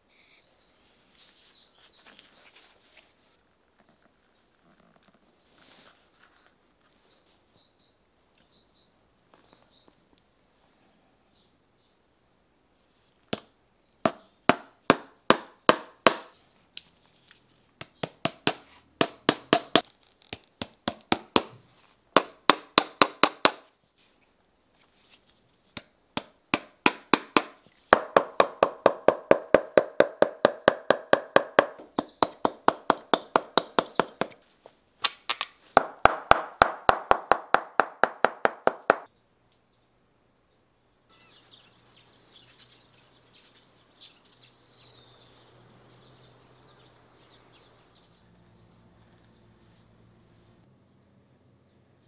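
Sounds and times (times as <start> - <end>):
hammer tapping tacks: 25.8 - 34.4, 35.3 - 39.1.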